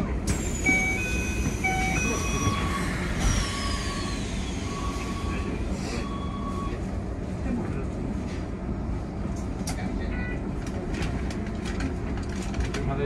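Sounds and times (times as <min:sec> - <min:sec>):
train rumble: 0:00.0 - 0:13.0
electric train inverter tones: 0:00.3 - 0:06.9.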